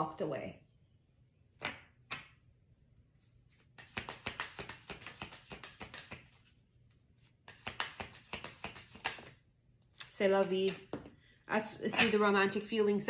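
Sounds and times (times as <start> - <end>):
cards being shuffled by hand: 3.2 - 9.4, 10.0 - 11.2.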